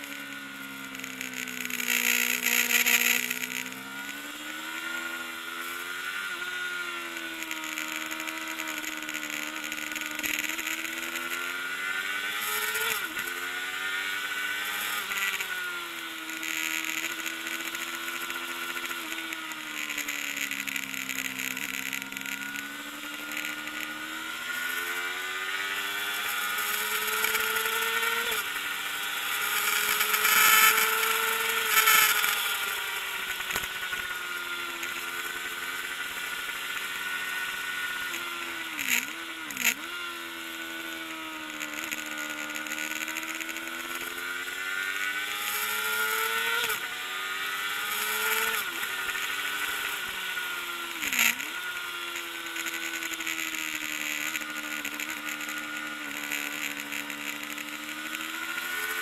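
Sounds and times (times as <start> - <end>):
racing motorcycle engine: 0.0 - 59.0.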